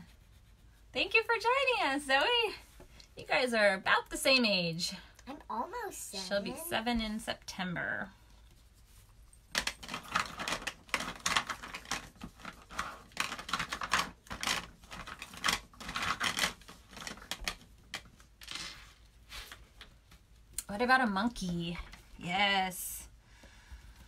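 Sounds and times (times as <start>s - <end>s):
drawing tool scratching paper: 0.0s - 1.2s.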